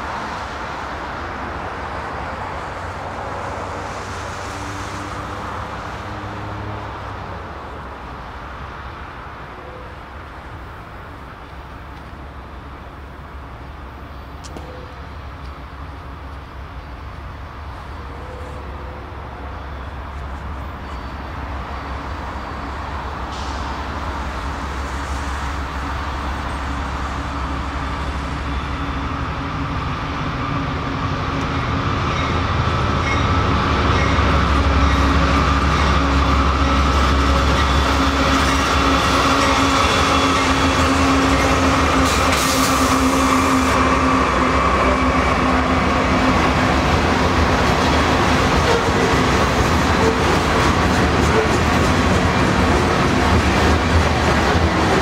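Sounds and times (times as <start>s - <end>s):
diesel locomotive engine rumble: 0.0s - 55.0s.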